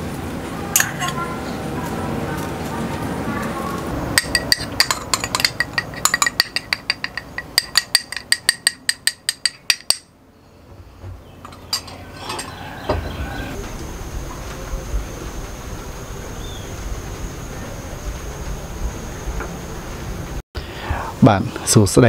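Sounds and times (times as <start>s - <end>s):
ceramic bowl ringing clinks: 0.8s - 1.2s, 4.2s - 10.1s, 11.4s - 12.8s
soft knocks: 10.6s - 13.7s.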